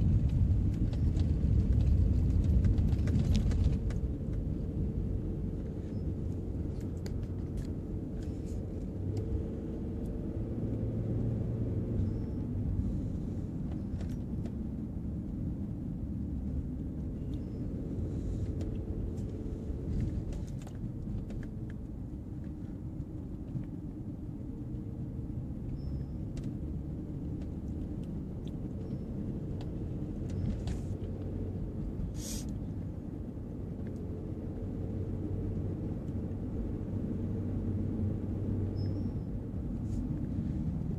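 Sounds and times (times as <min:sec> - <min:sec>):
car engine and tyre rumble: 0:00.0 - 0:40.9
short hiss: 0:32.1 - 0:32.5.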